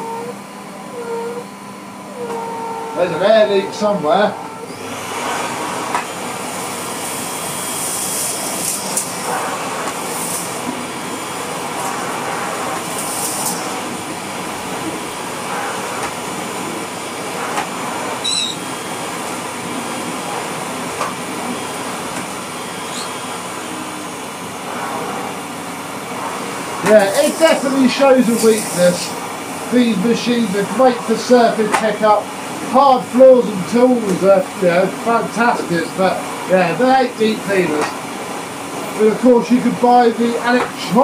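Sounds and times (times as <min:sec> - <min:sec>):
vacuum cleaner running: 0:00.0 - 0:41.0.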